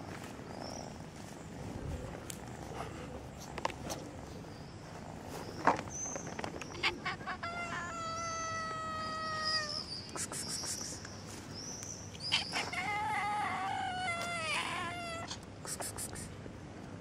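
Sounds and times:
cat meowing: 0:06.8 - 0:09.9, 0:12.3 - 0:15.4.

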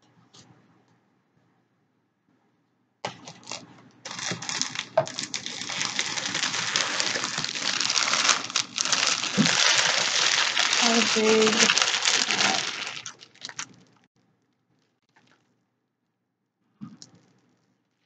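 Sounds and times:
plastic wrapping crinkling: 0:03.1 - 0:14.1.

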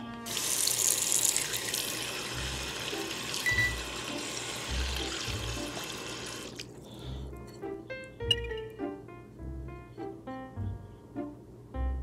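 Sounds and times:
background music: 0:00.0 - 0:12.0
tap water running into bowl: 0:00.2 - 0:06.8.

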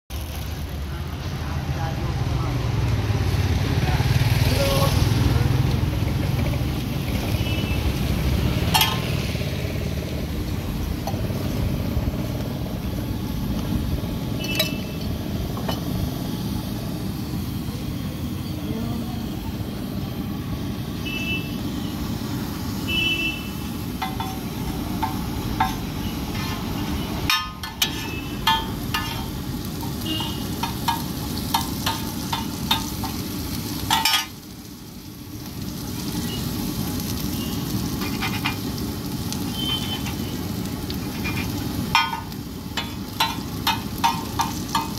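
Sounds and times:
onion sizzling on griddle: 0:00.1 - 0:44.9
metal spatula scraping iron: 0:08.7 - 0:09.2, 0:24.0 - 0:32.9, 0:38.0 - 0:38.7, 0:41.0 - 0:44.9.

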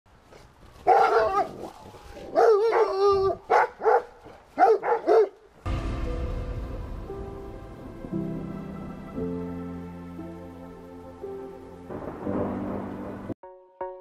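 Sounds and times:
dogs barking: 0:00.8 - 0:05.4
music: 0:05.7 - 0:14.0.

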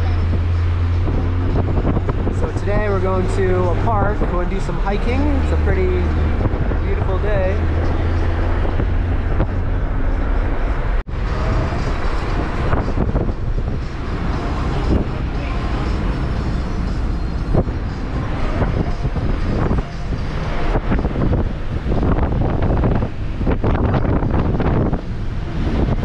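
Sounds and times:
engine and tyre rumble: 0:00.0 - 0:26.0
passing traffic: 0:00.0 - 0:26.0.

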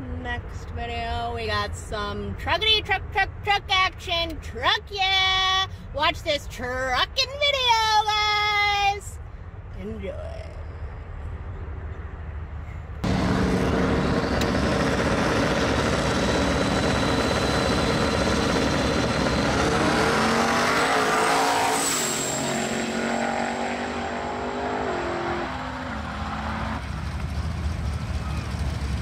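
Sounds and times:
high turbo whistle: 0:13.0 - 0:23.2
drag race engines accelerating: 0:13.0 - 0:29.0.

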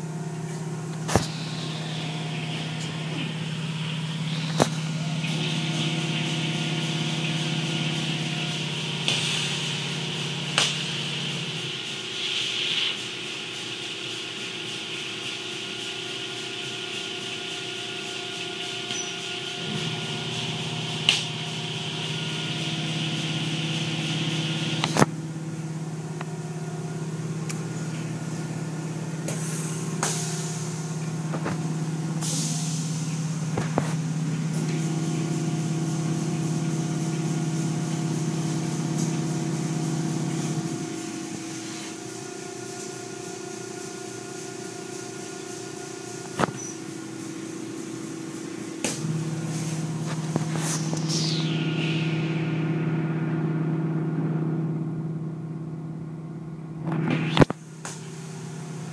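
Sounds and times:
deep motor hum: 0:00.0 - 0:12.3, 0:15.8 - 0:58.9
water spray hissing: 0:00.0 - 0:52.6
car wash motors humming: 0:00.0 - 0:58.9
cloth strips rubbing and slapping: 0:38.9 - 0:51.4.

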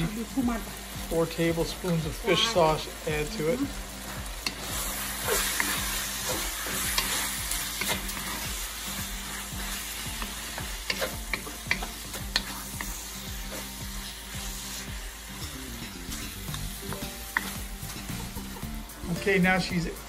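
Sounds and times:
chicken sizzling in wok: 0:00.0 - 0:20.0
wooden spatula scraping and tapping: 0:04.1 - 0:08.6, 0:09.6 - 0:13.7.

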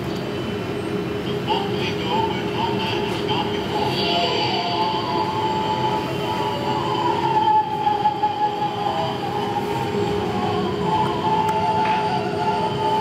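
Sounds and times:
distorted song through radio speaker: 0:01.3 - 0:07.8.

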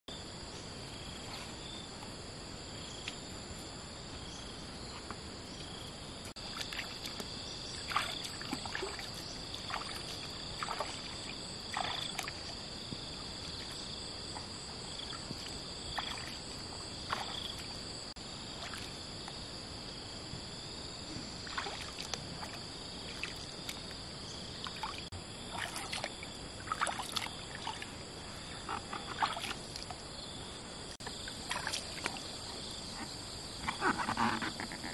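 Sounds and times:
high-pitched insect chorus: 0:00.1 - 0:34.9
splashes of wading in water: 0:06.4 - 0:19.2, 0:21.4 - 0:28.0, 0:28.8 - 0:30.0, 0:31.0 - 0:32.8.

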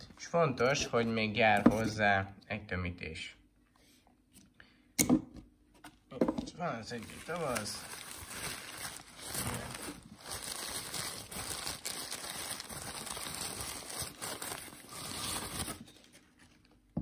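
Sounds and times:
tissue paper crinkling: 0:06.9 - 0:16.7.

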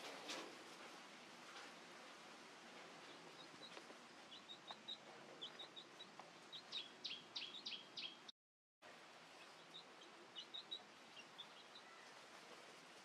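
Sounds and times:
steady low hiss: 0:00.0 - 0:08.3, 0:08.9 - 0:13.0
small birds chirping: 0:02.8 - 0:08.3, 0:09.3 - 0:13.0.

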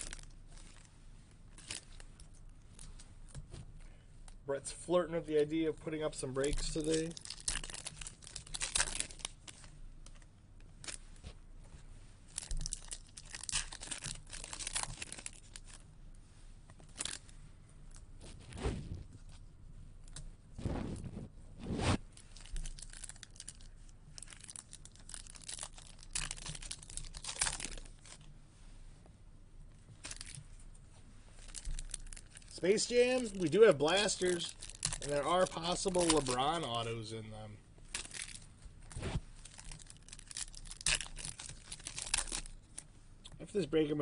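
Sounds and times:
foil wrappers tearing and crinkling: 0:00.0 - 0:00.8, 0:01.6 - 0:02.0, 0:06.1 - 0:09.7, 0:12.3 - 0:15.8, 0:16.9 - 0:17.3, 0:22.2 - 0:28.3, 0:30.0 - 0:30.4, 0:31.4 - 0:37.1, 0:37.9 - 0:42.8
cards rustling: 0:06.0 - 0:11.0, 0:12.3 - 0:15.8, 0:22.2 - 0:28.3, 0:30.0 - 0:30.5, 0:31.4 - 0:37.3, 0:37.9 - 0:42.9.

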